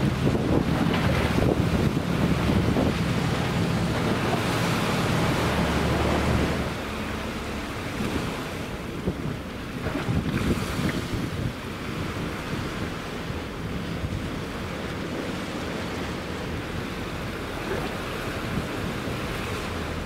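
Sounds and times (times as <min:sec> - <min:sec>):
sea water washing against concrete: 0:00.0 - 0:20.0
wind buffeting the microphone: 0:00.0 - 0:20.0.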